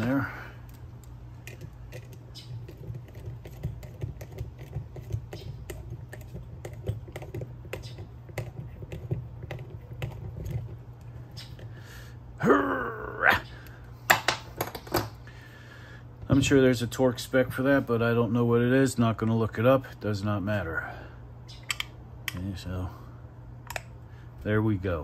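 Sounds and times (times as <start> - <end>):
man humming: 12.4 - 13.6.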